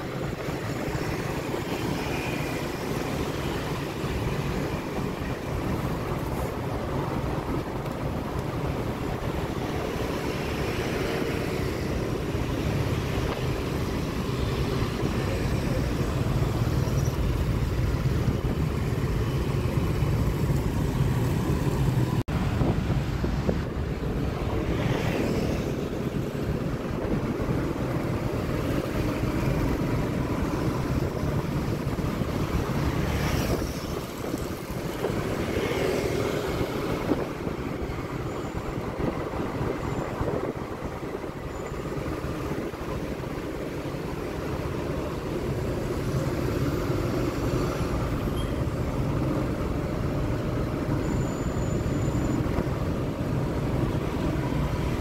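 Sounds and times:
motorbikes passing: 0.0 - 51.0
city traffic rumble: 0.0 - 55.0
wind buffeting microphone: 4.2 - 44.7.

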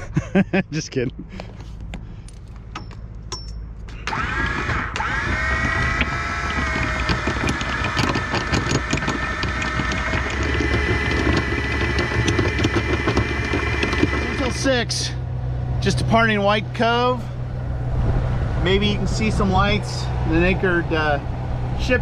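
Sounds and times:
boat engine humming low: 0.8 - 22.0
anchor chain clicking: 2.3 - 14.8
anchor windlass motor whine: 3.9 - 22.0.

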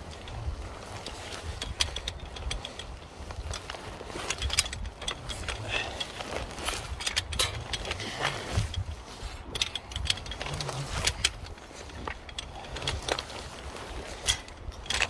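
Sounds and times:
metal climbing hardware clinking: 0.0 - 15.0
wind buffeting microphone: 0.0 - 15.0.

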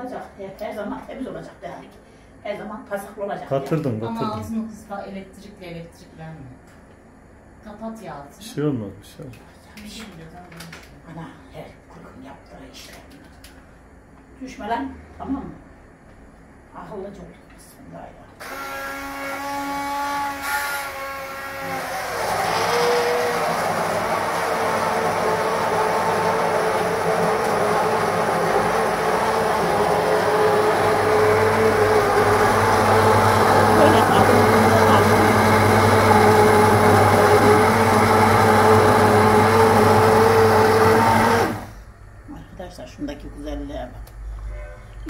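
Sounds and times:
hand blender motor whining: 18.4 - 41.8.

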